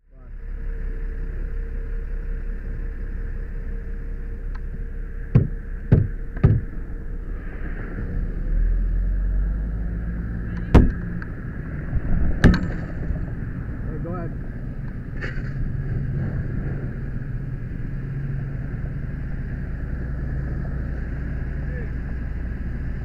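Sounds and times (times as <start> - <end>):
sharp knocks: 5.3 - 6.7, 10.6 - 11.1
fire rushing with low rumble: 5.8 - 23.0.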